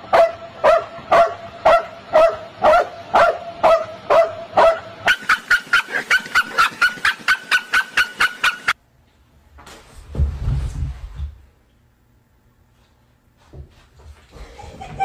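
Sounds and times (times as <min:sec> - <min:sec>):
dog barking: 0:00.1 - 0:08.8.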